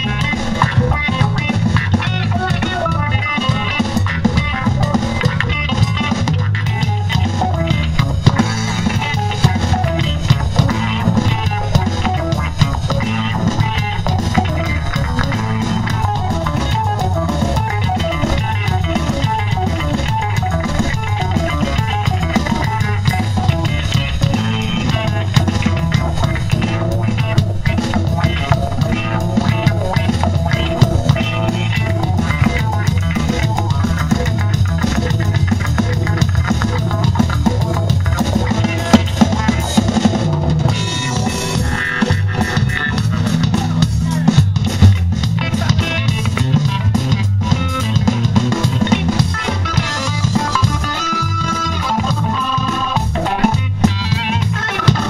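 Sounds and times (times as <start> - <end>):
drum kit beat: 0.0 - 55.0
electric guitar lines: 0.0 - 55.0.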